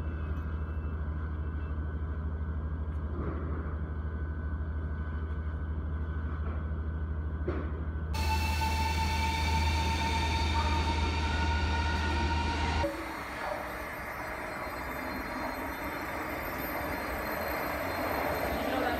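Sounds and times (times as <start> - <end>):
train hum with fast throb: 0.0 - 18.9
train hiss and high whine: 8.2 - 18.9.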